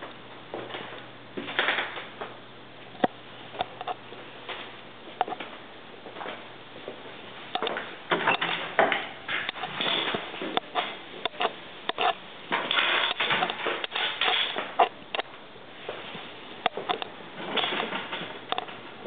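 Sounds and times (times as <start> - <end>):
irregular clicks and knocks: 7.5 - 15.3, 16.6 - 18.8.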